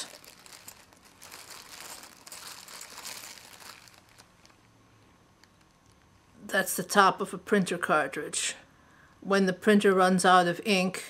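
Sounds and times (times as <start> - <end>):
rustling small items in a box: 0.0 - 4.7.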